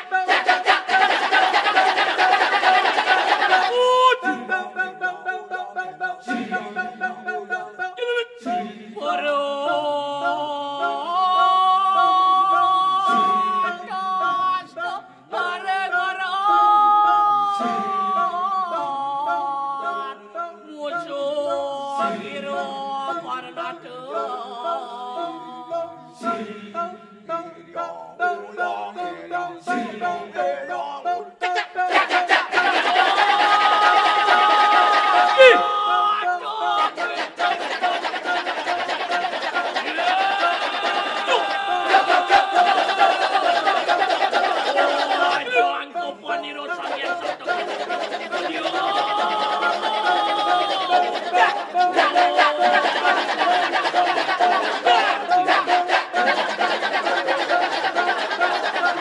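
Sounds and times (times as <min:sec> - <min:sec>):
male chorus chanting: 0:00.0 - 0:59.0.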